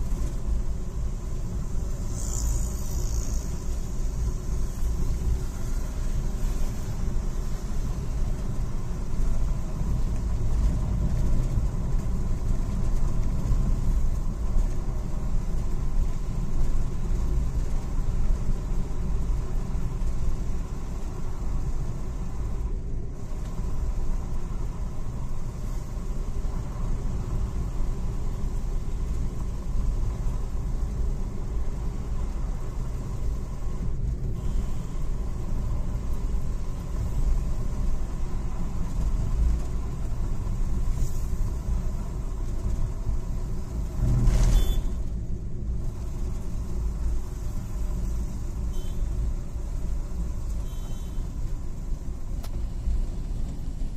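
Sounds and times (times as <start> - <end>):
vehicle engine and tyre noise: 0.0 - 53.9.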